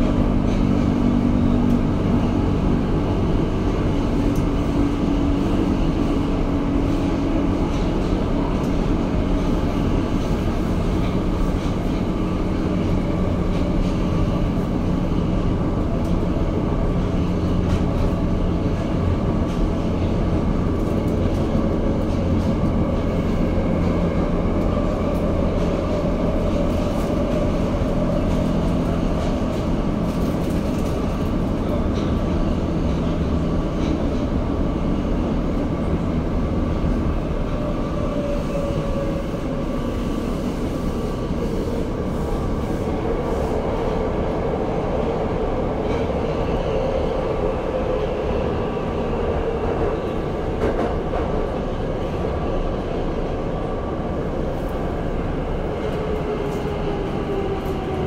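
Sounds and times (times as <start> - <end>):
subway train wheels rumbling on rail: 0.0 - 58.0.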